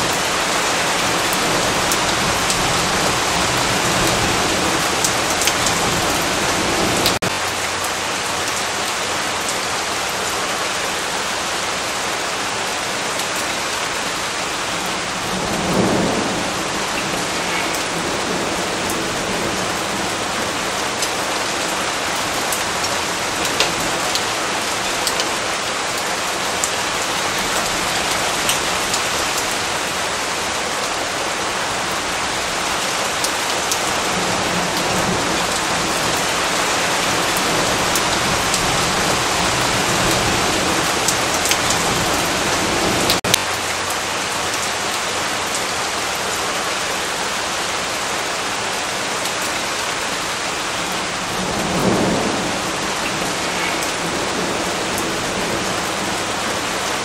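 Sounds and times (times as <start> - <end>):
steady rain falling: 0.0 - 57.0
low rumble of thunder: 15.0 - 20.7, 51.2 - 56.1.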